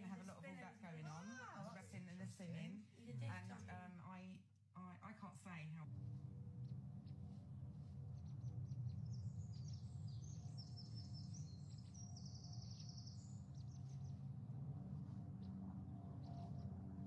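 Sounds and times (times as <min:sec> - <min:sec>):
steady low hum: 0:00.0 - 0:04.1, 0:04.8 - 0:17.0
birdsong chirps and trill: 0:06.6 - 0:17.0.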